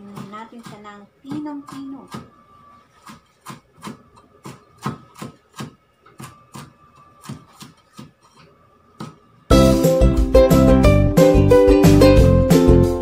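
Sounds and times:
cleaver chopping on a wooden board: 3.4s - 8.1s
loud music: 9.5s - 13.0s.

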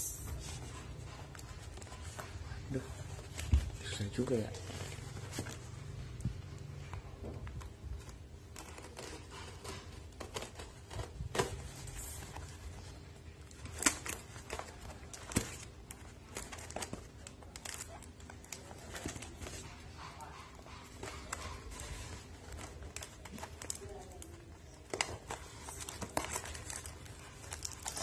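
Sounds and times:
envelope crinkling and tearing: 10.1s - 19.4s, 21.7s - 28.0s.

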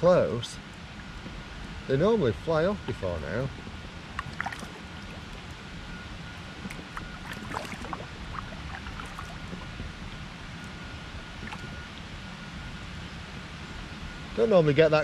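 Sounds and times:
low steady rumble: 0.0s - 15.0s
water drips and trickles: 4.1s - 5.7s, 6.3s - 12.2s.

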